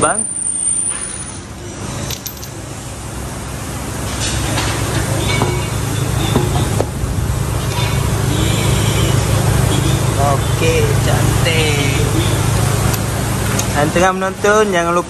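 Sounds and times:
steady low hum: 0:01.4 - 0:15.0
metallic clinks of wheel fitting: 0:02.0 - 0:02.6.

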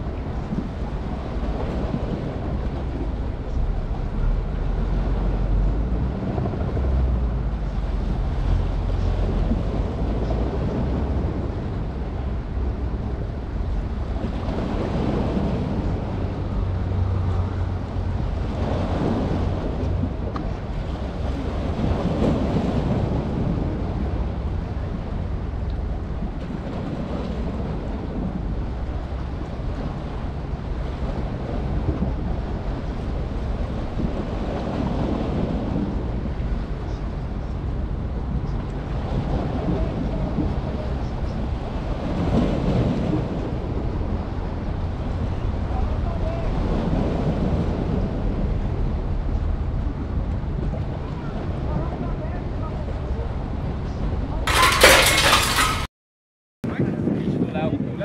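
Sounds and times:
sea waves: 0:00.0 - 0:55.9
wind buffeting microphone: 0:00.0 - 0:55.9, 0:56.6 - 0:58.0.

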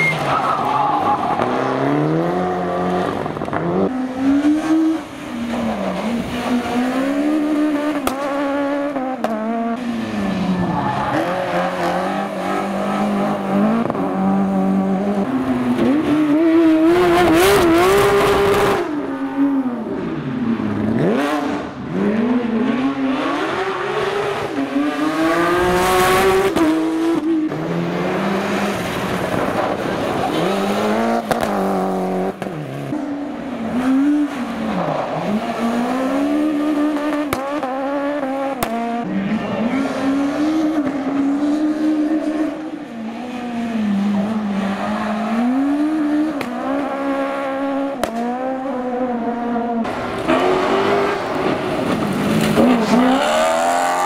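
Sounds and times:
tyre squeal: 0:00.0 - 0:01.5
rally car engines revving: 0:00.0 - 0:54.0.

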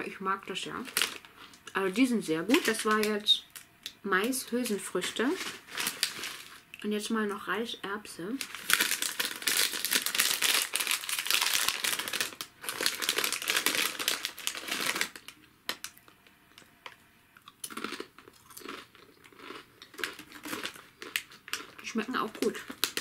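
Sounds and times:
plastic snack bag crackling: 0:00.0 - 0:03.7, 0:04.3 - 0:06.7, 0:08.3 - 0:23.0
cracker being chewed: 0:11.7 - 0:21.8.

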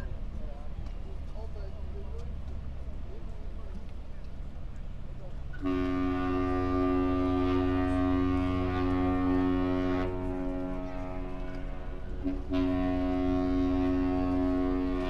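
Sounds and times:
ship horn blasts: 0:05.5 - 0:15.0.

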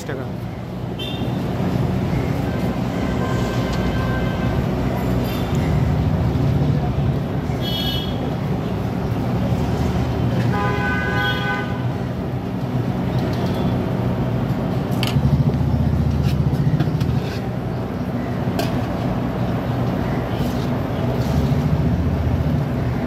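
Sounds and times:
street traffic: 0:00.0 - 0:23.0
vehicle horn honking: 0:07.6 - 0:08.2, 0:10.5 - 0:11.9.

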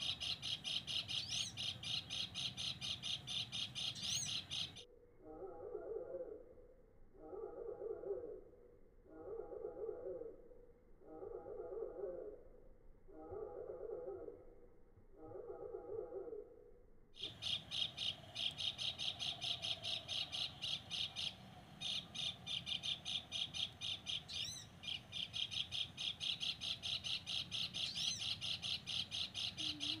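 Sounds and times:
bird chattering call: 0:17.2 - 0:30.0.

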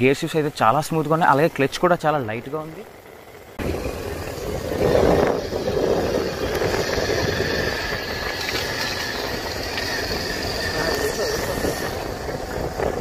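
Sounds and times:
wind and road rush: 0:00.0 - 0:13.0
motorcycle engine running: 0:02.3 - 0:13.0.

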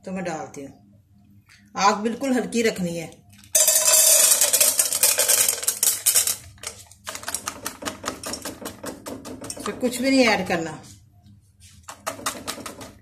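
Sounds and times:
popcorn kernels rattling into pan: 0:03.6 - 0:09.9.

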